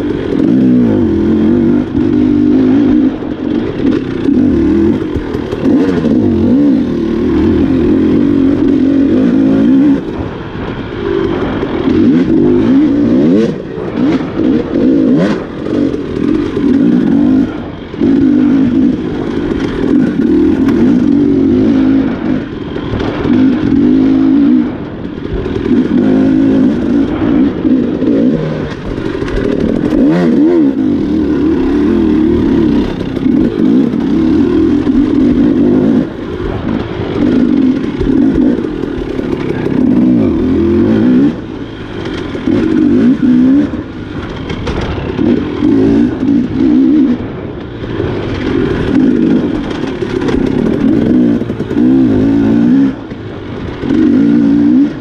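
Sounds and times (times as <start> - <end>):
dirt bike engine revving: 0.0 - 55.0
knocks and clatter: 28.6 - 54.6.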